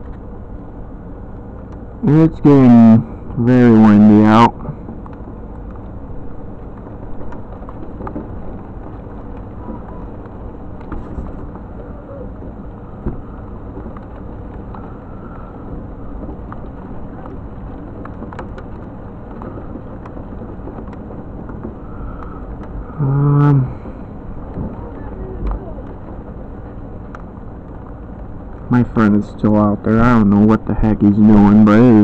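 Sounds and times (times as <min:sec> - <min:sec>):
rain: 0:00.0 - 0:32.0
wind: 0:00.0 - 0:32.0
faint clicks: 0:16.2 - 0:22.8.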